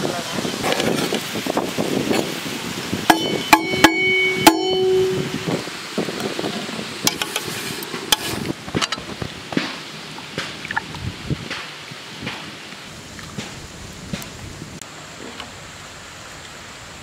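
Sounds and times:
ladle knocking against pot: 0:03.1 - 0:05.2
steel plate clanking on pot: 0:03.1 - 0:05.4.

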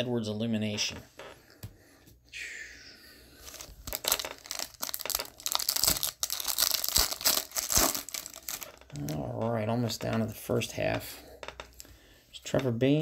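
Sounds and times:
foil wrapper crackling: 0:03.4 - 0:09.1.

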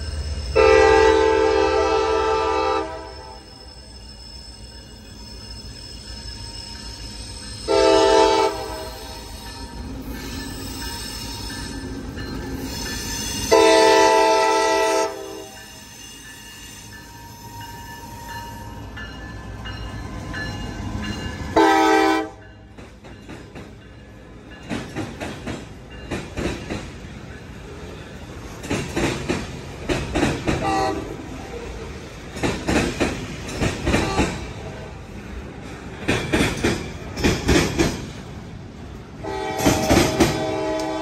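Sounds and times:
locomotive horn blasts: 0:00.6 - 0:03.5, 0:07.7 - 0:09.1, 0:13.5 - 0:15.6, 0:21.6 - 0:22.4, 0:30.6 - 0:31.2, 0:39.2 - 0:41.0
train wheels clicking over rail joints: 0:22.4 - 0:41.0.

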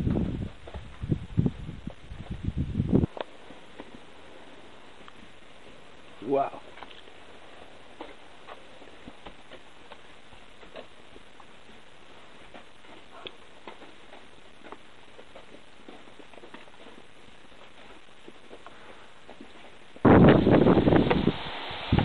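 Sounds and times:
wind buffeting microphone: 0:00.0 - 0:03.2, 0:20.0 - 0:22.0.

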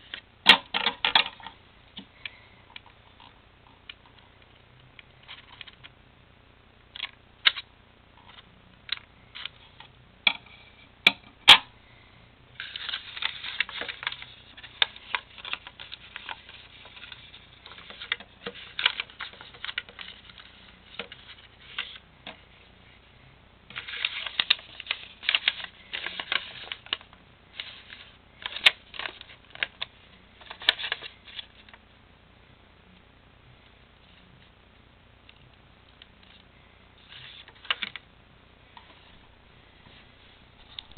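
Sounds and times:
paper rustling and crinkling: 0:12.6 - 0:22.0, 0:23.7 - 0:31.7, 0:37.0 - 0:38.0.

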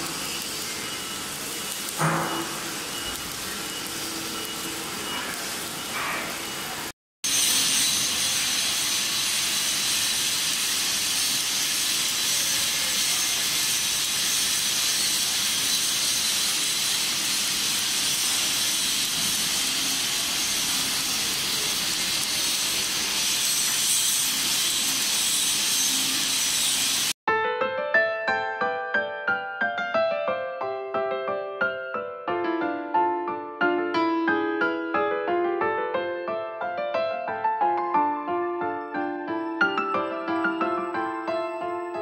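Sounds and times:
welding arc hissing: 0:00.0 - 0:27.2.

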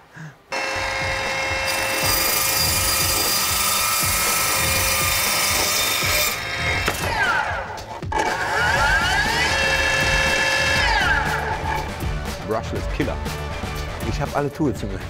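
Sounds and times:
chop saw whining through wood: 0:00.5 - 0:12.0.

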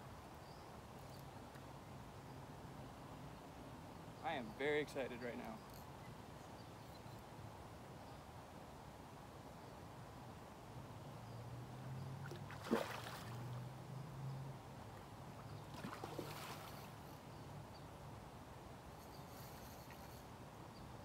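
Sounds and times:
fish splashing: 0:12.2 - 0:13.5, 0:15.7 - 0:17.0.

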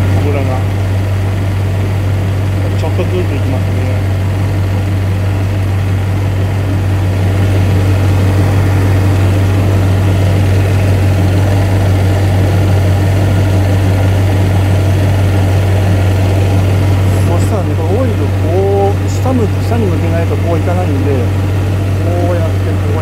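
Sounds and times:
air conditioning fan: 0:00.0 - 0:23.0
car engine idling: 0:00.0 - 0:23.0.

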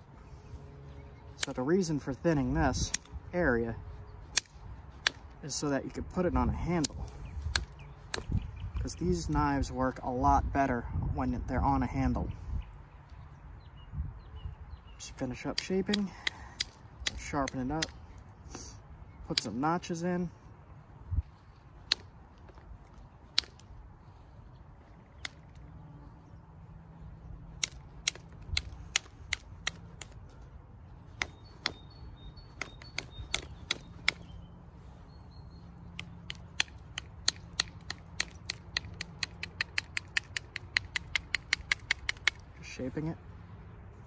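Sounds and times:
striker clicking on flint: 0:01.3 - 0:03.3, 0:03.9 - 0:05.7, 0:06.3 - 0:10.0, 0:15.1 - 0:19.8, 0:21.7 - 0:23.8, 0:25.1 - 0:25.8, 0:27.3 - 0:34.4, 0:35.8 - 0:43.1.

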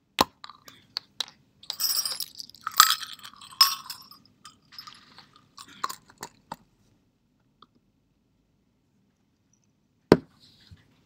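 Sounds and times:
jingle bells rattling in container: 0:01.6 - 0:06.4.

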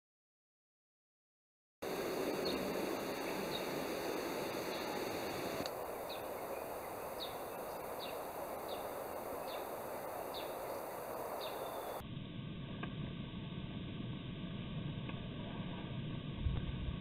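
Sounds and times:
outdoor background hiss: 0:01.8 - 0:15.1
dull low background noise: 0:01.8 - 0:17.0.

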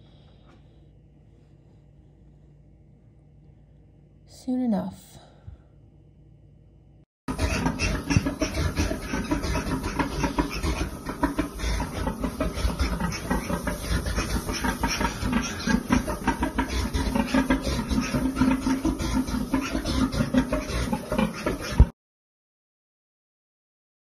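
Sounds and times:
pigs grunting and squealing: 0:07.3 - 0:21.9.

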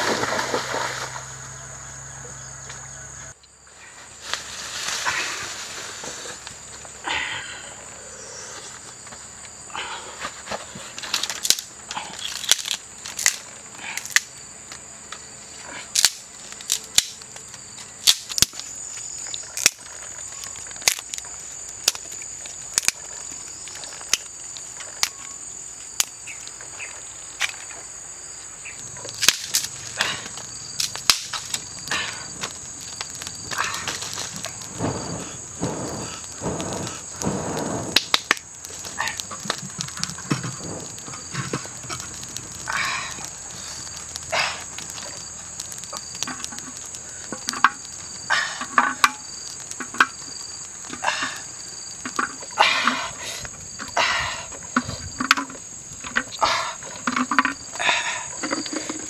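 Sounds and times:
high-pitched insect drone: 0:00.8 - 0:03.4
wood fire crackling: 0:03.5 - 0:07.7, 0:08.5 - 0:59.0.

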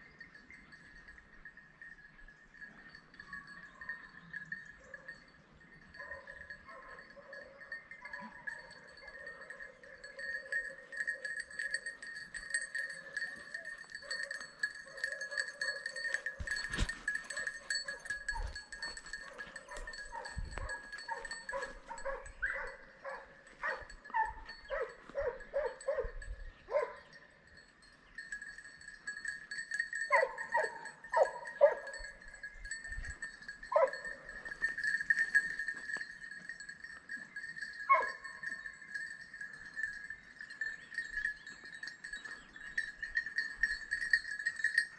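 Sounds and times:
high steady ringing: 0:00.6 - 0:26.4, 0:27.4 - 0:44.9
dogs barking: 0:05.9 - 0:11.9, 0:12.7 - 0:27.1, 0:30.0 - 0:32.2, 0:33.6 - 0:35.4, 0:37.9 - 0:38.5.

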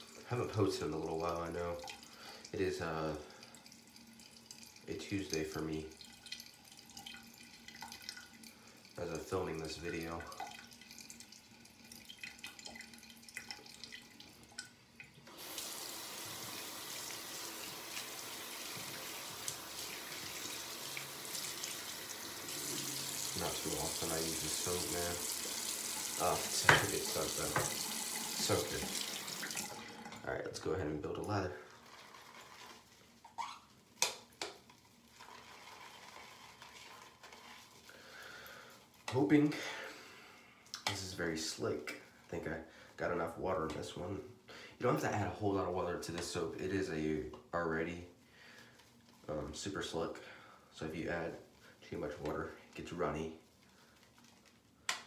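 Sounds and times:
faint drips: 0:00.0 - 0:15.3, 0:36.6 - 0:43.9, 0:48.2 - 0:55.0
sink tap running: 0:03.3 - 0:30.3
shaving brush swishing in bowl: 0:35.1 - 0:37.9.

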